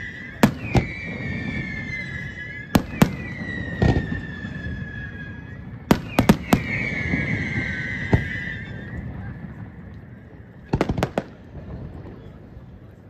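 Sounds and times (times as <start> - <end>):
high firework whistle: 0.0 - 11.3
fireworks bangs: 0.0 - 13.0.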